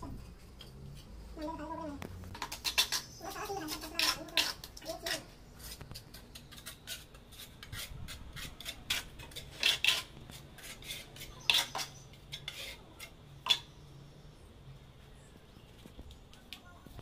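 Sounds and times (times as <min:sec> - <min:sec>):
trowel scraping on tile: 0:02.3 - 0:13.6.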